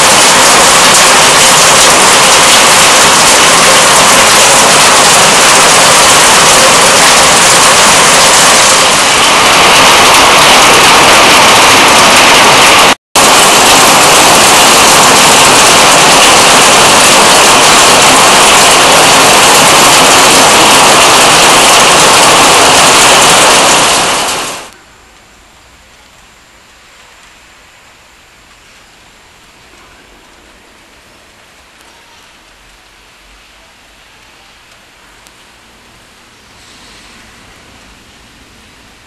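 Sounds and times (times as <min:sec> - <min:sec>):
heavy rain pouring: 0:00.0 - 0:24.8.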